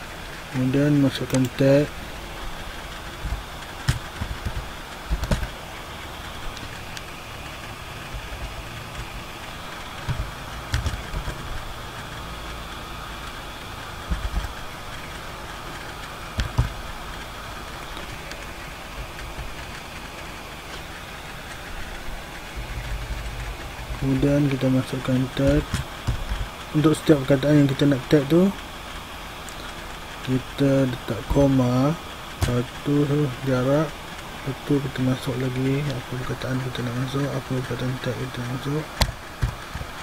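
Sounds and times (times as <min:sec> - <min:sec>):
steady mechanical hum: 0:00.0 - 0:40.0.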